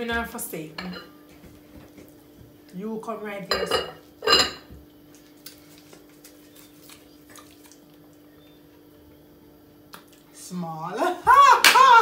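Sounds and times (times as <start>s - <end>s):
faint steady hum: 0.0s - 12.0s
snack wrapper crinkling: 5.1s - 8.0s.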